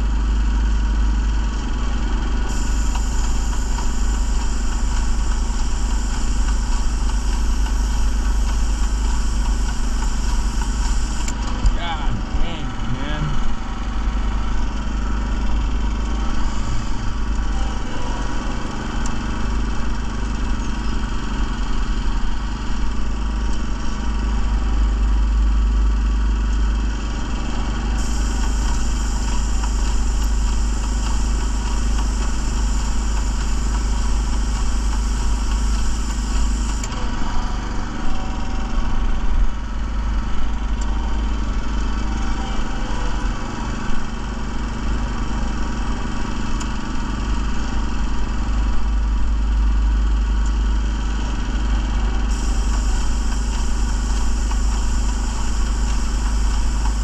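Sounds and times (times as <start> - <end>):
small gasoline engine running: 0.0 - 57.0
paint spraying hiss: 2.5 - 11.3, 27.9 - 36.9, 52.3 - 57.0.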